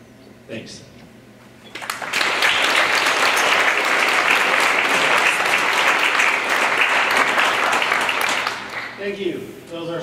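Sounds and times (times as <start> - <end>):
audience applauding: 1.7 - 9.0.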